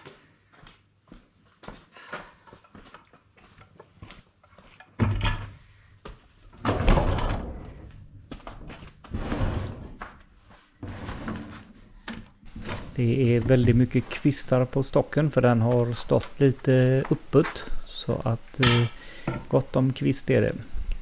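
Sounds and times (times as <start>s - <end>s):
log knocking and scraping: 10.9s - 14.1s.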